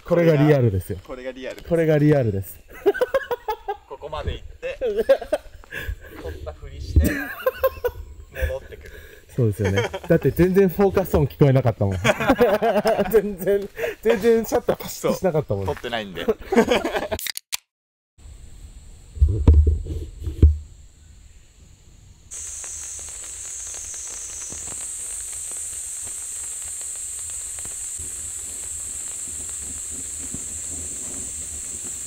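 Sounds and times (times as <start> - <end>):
meat sizzling in a pan: 22.3 - 32.0.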